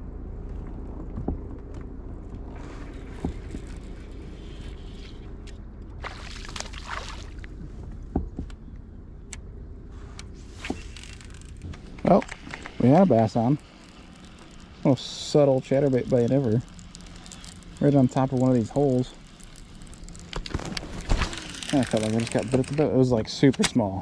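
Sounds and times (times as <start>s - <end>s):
low hum: 0.0s - 24.0s.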